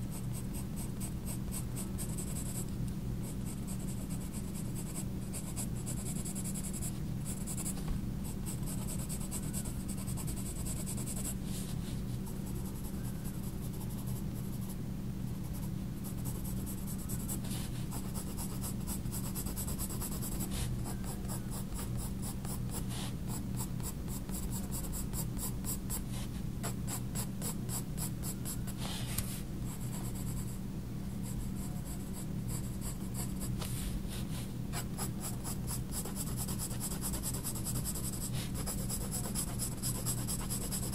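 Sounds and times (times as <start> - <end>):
steady low hum: 0.0 - 40.9
pencil scratching on paper: 17.9 - 28.6, 34.7 - 40.9.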